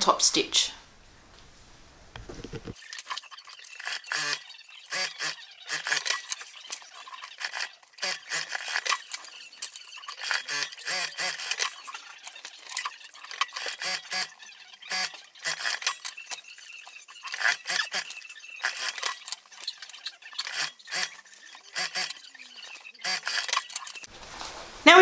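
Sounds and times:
fabric rustling: 0.8s - 2.8s, 24.1s - 25.0s.

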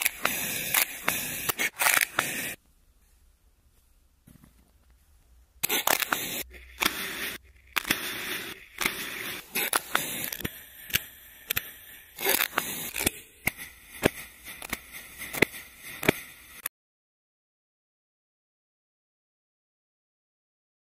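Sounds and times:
sharp clicks: 5.6s - 16.7s.

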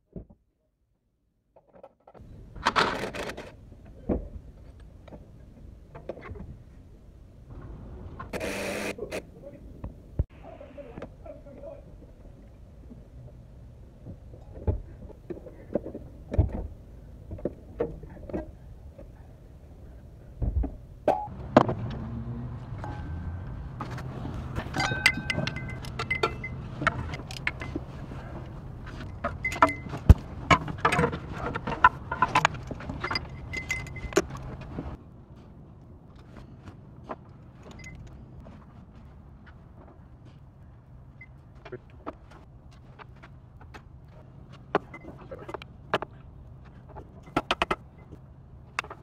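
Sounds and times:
wrenches clinking on metal: 24.6s - 27.8s, 29.0s - 34.4s.

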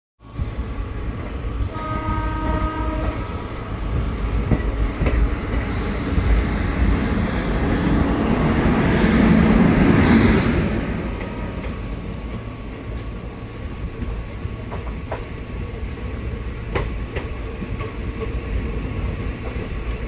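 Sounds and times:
train rumbling and clattering: 0.2s - 20.0s
train horn: 1.7s - 3.5s, 11.1s - 11.8s.

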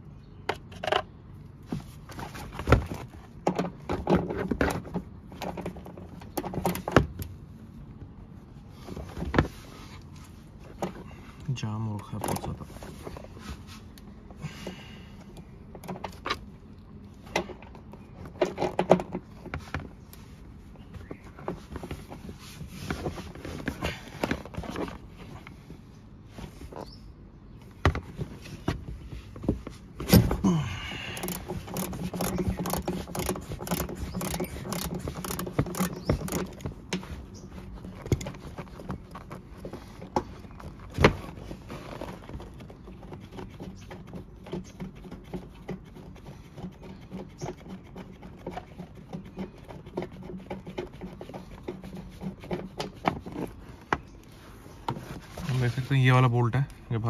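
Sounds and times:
ratchet wrench clicking: 31.1s - 36.6s.

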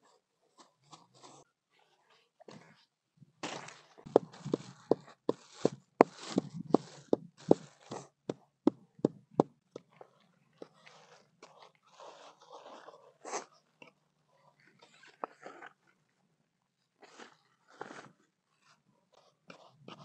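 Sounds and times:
pestle pounding in wooden mortar: 4.1s - 9.6s.

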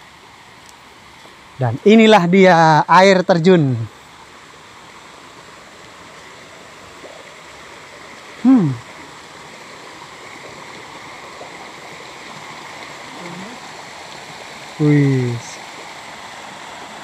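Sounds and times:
waterfall rushing over rock: 7.7s - 17.0s
person exclaiming: 8.4s - 8.8s.

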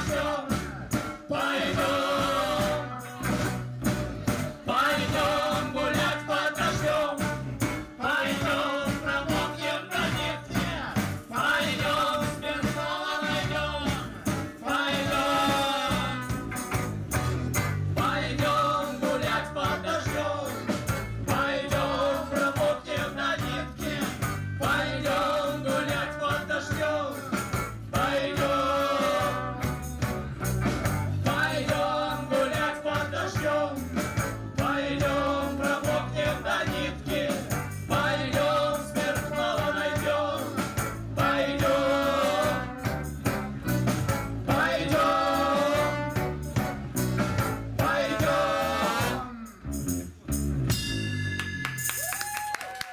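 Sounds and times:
live tango band: 0.1s - 18.7s, 36.7s - 49.3s
accordion melody: 41.2s - 49.2s.

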